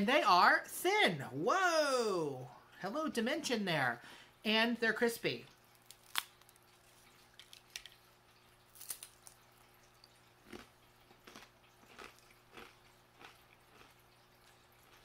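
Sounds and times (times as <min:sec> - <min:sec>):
crispbread being chewed: 0:05.5 - 0:15.0.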